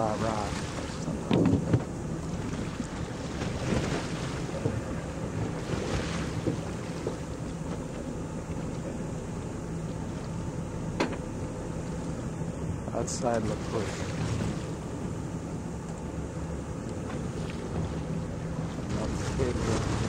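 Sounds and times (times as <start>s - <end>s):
boat engine running: 0.0s - 20.0s
choppy sea: 0.0s - 20.0s.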